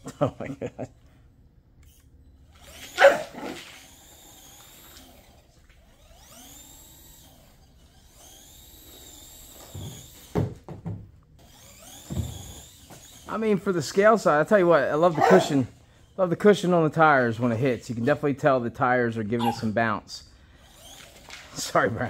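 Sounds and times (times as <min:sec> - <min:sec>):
electric motor whine of toy truck: 0:01.8 - 0:10.3, 0:11.4 - 0:13.3, 0:20.5 - 0:21.6
dog barking: 0:03.0 - 0:03.6, 0:15.2 - 0:15.6, 0:19.4 - 0:19.7.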